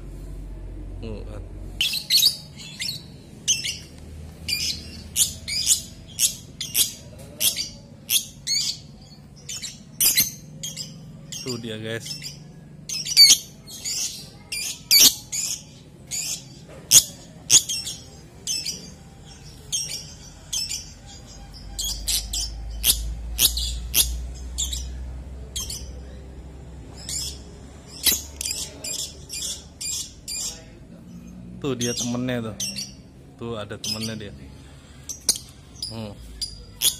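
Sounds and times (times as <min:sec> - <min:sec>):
bird chirping shrilly: 0:04.5 - 0:26.0.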